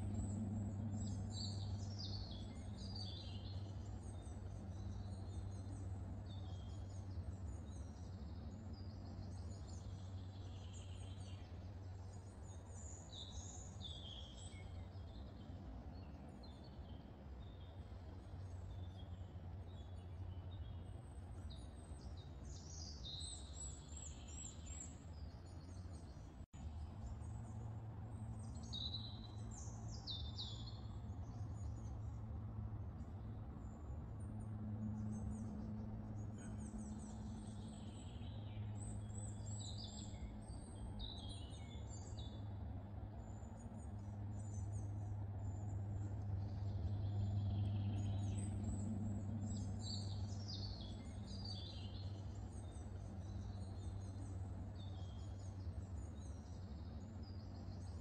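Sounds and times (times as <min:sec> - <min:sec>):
steady low hum: 0:00.0 - 0:13.6
songbirds chirping and trilling: 0:00.0 - 0:58.0.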